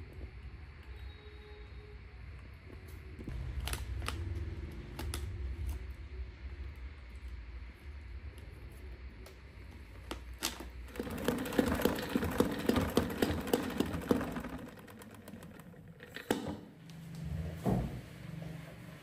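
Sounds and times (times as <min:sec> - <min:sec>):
spin mop whirring and clicking: 0:07.2 - 0:19.0.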